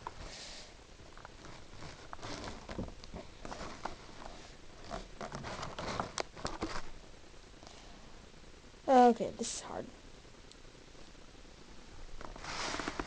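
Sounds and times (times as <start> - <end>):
plastic packaging rustling and clicking: 1.0 - 6.9.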